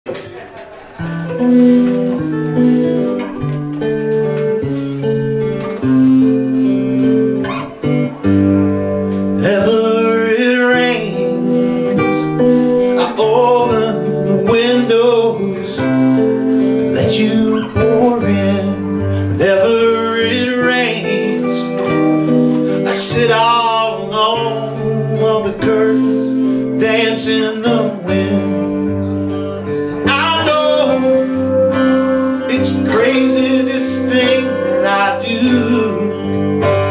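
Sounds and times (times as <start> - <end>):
guitars playing chords: 0.1 - 36.9
man singing into a microphone: 9.0 - 36.9.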